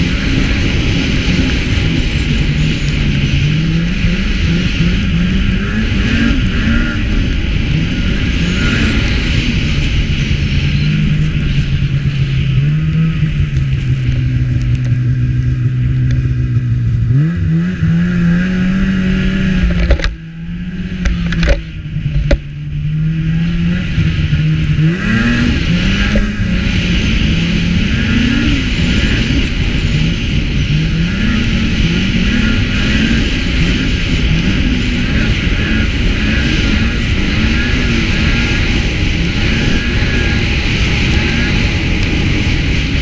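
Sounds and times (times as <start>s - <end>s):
snowmobile engine running: 0.0s - 43.0s.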